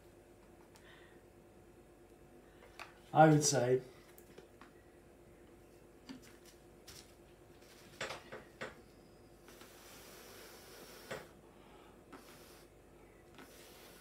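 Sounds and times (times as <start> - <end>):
person blowing breathy hiss: 9.4 - 12.8, 13.4 - 14.0.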